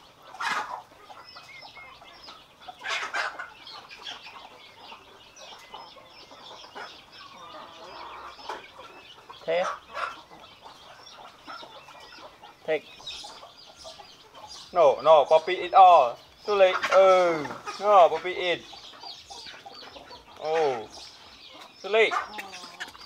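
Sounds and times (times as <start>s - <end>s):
chickens clucking: 0.0s - 23.0s
voice: 20.4s - 20.9s.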